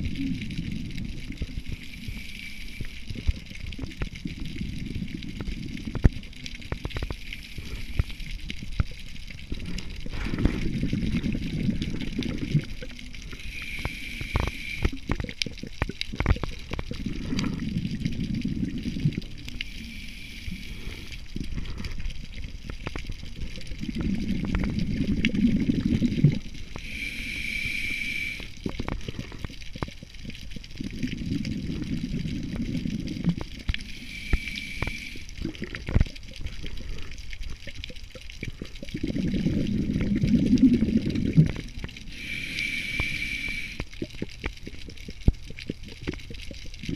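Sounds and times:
exhaled bubbles rushing: 0.0s - 46.9s
regulator inhale hiss: 1.6s - 3.4s, 6.9s - 8.5s, 13.3s - 15.1s, 19.5s - 22.0s, 26.7s - 29.4s, 33.8s - 35.8s, 42.0s - 44.0s.

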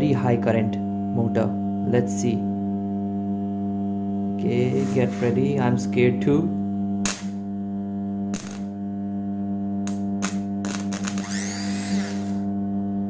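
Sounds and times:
electrical snaps: 7.0s - 7.4s, 8.3s - 8.8s, 9.8s - 12.4s
transformer humming: 9.9s - 12.5s
starter motor whine: 10.9s - 12.5s.

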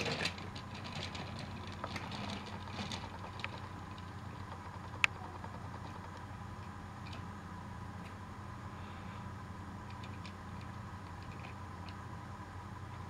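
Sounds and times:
wheels clicking on plastic track: 0.0s - 6.3s
toy train motor hum: 0.0s - 6.4s.

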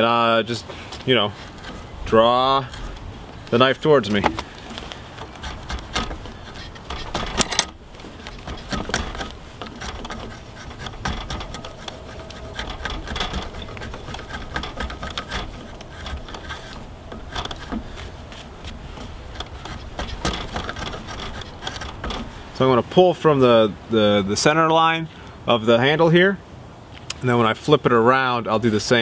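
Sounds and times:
drawknife scraping wood: 1.3s - 22.6s.

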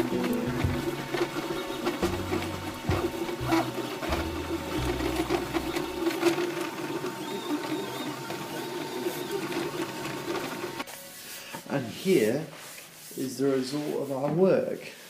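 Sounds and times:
stepper motors buzzing: 0.0s - 10.8s.

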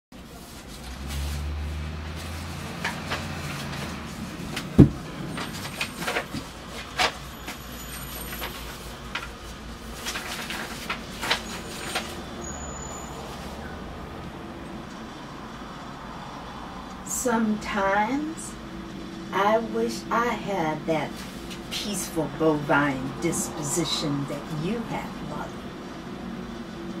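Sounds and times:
paper rustling: 0.2s - 12.4s, 21.1s - 21.7s
loud thump: 4.8s - 5.0s.

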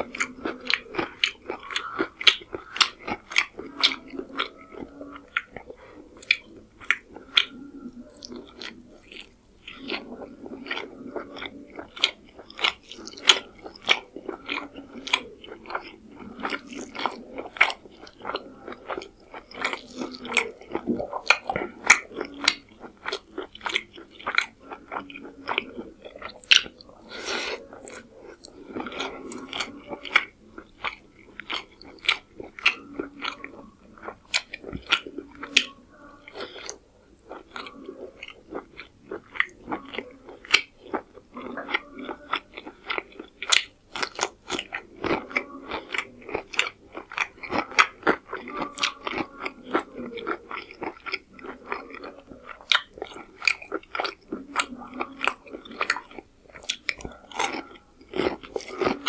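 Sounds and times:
close chewing mouth smacks: 0.0s - 59.0s.

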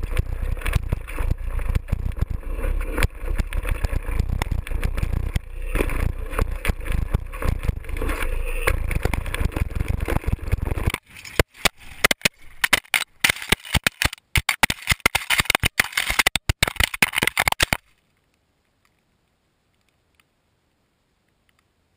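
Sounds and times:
bike camera rumble and rattle: 0.0s - 18.0s
camera tumbling along ground: 0.0s - 21.9s.

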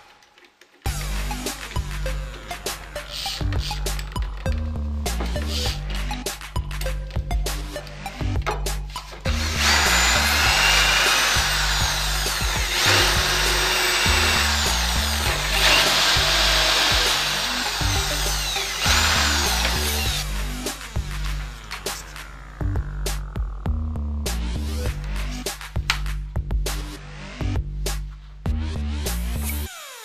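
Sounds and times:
background music with a steady beat: 0.8s - 30.0s
electric drill boring through chipboard: 9.3s - 22.2s.

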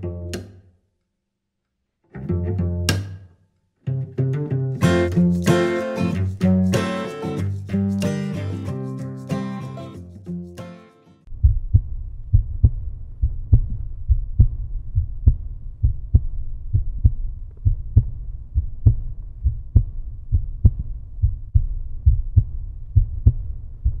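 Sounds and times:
deep thumping beat: 11.3s - 24.0s.

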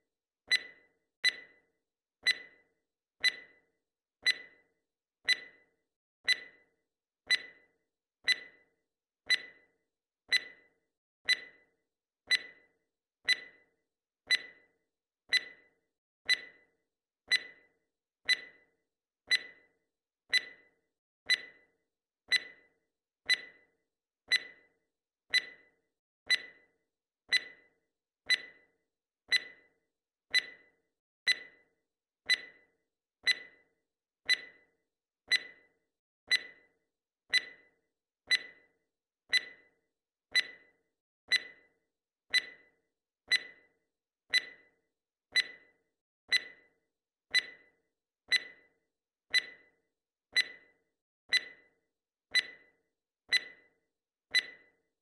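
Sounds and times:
timer ticking: 0.0s - 1.6s, 2.2s - 2.6s, 3.2s - 3.6s, 4.2s - 4.6s, 5.2s - 5.6s, 6.3s - 6.6s, 7.3s - 7.6s, 9.3s - 9.7s, 10.3s - 10.7s, 11.3s - 11.6s, 12.3s - 12.6s, 13.3s - 13.7s, 14.3s - 14.6s, 15.3s - 15.7s, 16.3s - 16.7s, 17.3s - 17.6s, 18.3s - 18.7s, 19.3s - 19.7s, 20.3s - 20.7s, 21.3s - 21.7s, 22.3s - 22.7s, 23.3s - 23.7s, 24.3s - 24.7s, 25.3s - 25.7s, 26.3s - 26.7s, 27.3s - 28.7s, 29.3s - 31.7s, 32.3s - 33.7s, 34.3s - 34.7s, 35.3s - 35.7s, 36.3s - 36.7s, 37.3s - 38.7s, 39.3s - 41.7s, 42.3s - 42.7s, 43.3s - 43.7s, 44.3s - 44.7s, 45.3s - 46.7s, 47.3s - 47.7s, 48.3s - 52.7s, 53.3s - 54.8s.

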